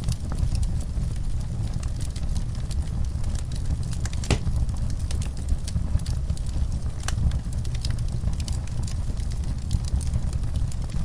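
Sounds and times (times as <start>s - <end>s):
wood fire crackling: 0.0s - 11.0s
low rumble: 2.6s - 11.0s.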